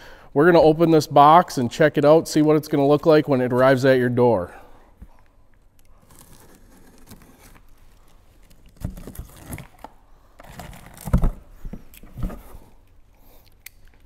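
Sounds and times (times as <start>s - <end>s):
knife slitting packing tape: 6.0s - 7.7s, 8.5s - 11.2s.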